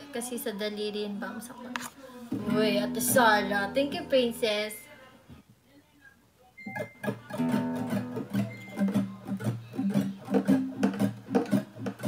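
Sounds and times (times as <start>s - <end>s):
nylon-string guitar strumming: 2.4s - 4.4s, 6.6s - 12.0s.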